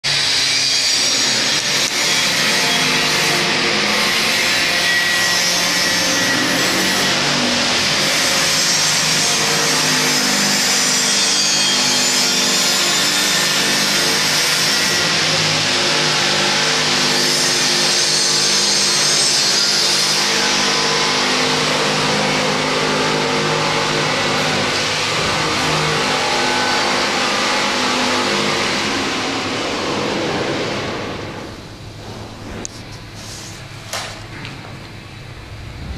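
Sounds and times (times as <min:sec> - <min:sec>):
workshop machinery running: 0:00.0 - 0:35.9.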